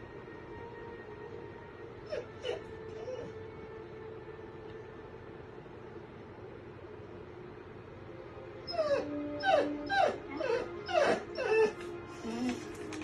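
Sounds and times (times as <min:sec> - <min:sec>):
quiet television music: 0:00.0 - 0:13.0
dog yelping: 0:02.0 - 0:03.4, 0:08.7 - 0:11.8.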